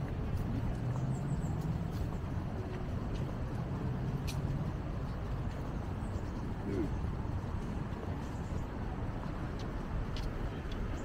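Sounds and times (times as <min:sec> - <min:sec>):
street background noise: 0:00.0 - 0:11.0
vehicle engine humming: 0:00.0 - 0:11.0.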